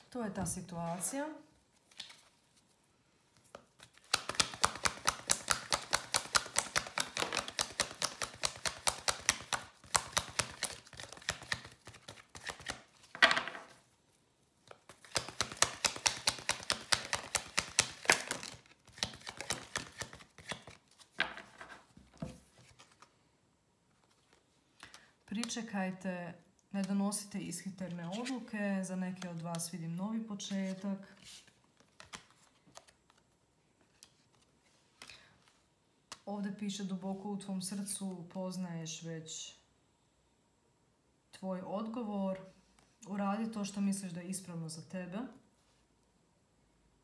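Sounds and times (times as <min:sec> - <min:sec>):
cards being shuffled: 0:01.8 - 0:02.7, 0:03.3 - 0:13.8, 0:14.6 - 0:23.1, 0:27.9 - 0:28.5, 0:30.4 - 0:35.1.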